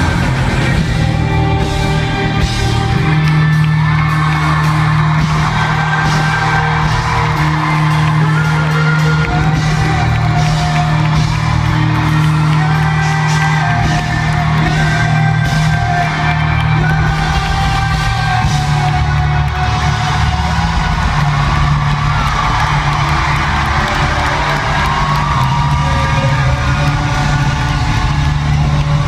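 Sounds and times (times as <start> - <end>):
person singing long notes: 0.0 - 22.0
crowd whooping and cheering: 0.0 - 29.0
live pop-rock band playing: 0.0 - 29.0.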